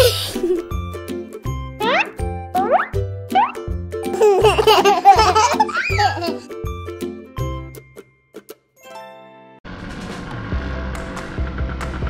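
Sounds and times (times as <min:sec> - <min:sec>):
children's music with bass beat: 0:00.0 - 0:08.0
cartoon baby voices giggling: 0:04.1 - 0:06.5.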